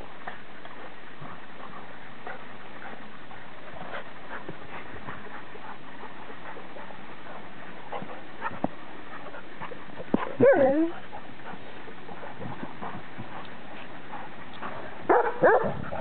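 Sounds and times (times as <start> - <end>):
dog whining: 10.4 - 10.9.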